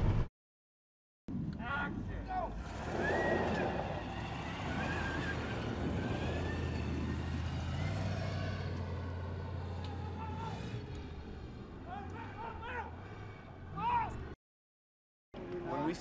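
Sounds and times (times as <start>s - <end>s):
truck engine droning: 2.4s - 14.4s.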